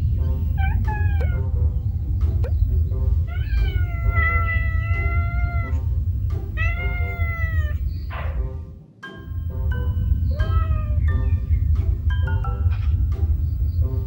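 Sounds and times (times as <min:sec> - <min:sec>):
cat meowing: 0:00.2 - 0:01.6, 0:03.2 - 0:08.4, 0:10.2 - 0:11.4.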